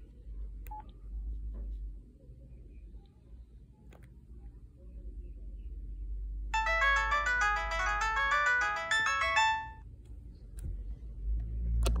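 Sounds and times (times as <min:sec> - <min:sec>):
phone power-on melody: 0:06.6 - 0:09.8.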